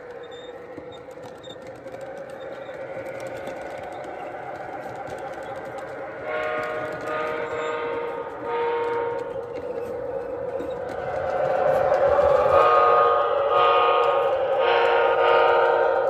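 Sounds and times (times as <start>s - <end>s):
model train cars rolling on track: 0.0s - 16.0s
electronic diesel horn blast: 6.2s - 9.3s, 12.6s - 16.0s.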